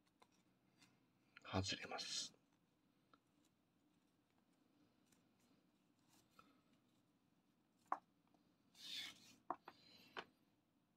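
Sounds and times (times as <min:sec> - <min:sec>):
rope rustling: 0:03.1 - 0:08.0.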